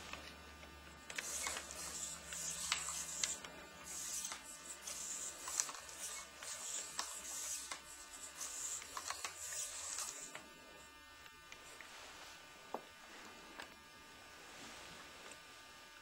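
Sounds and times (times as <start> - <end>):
servos buzzing: 0.0 - 11.9.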